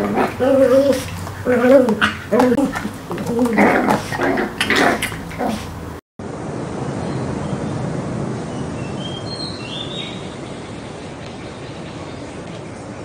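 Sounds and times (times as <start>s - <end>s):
animals vocalizing while fighting: 0.0s - 6.0s
outdoor noise hiss: 0.0s - 13.0s.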